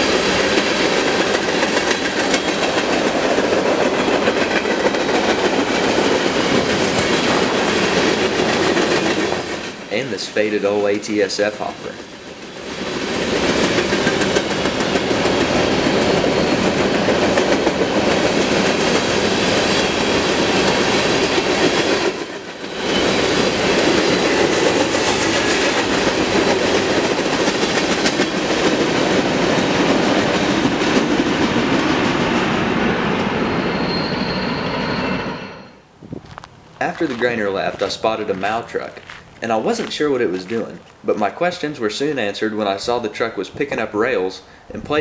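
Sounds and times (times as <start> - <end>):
freight train wheels clattering: 0.0 - 9.9, 12.0 - 32.6.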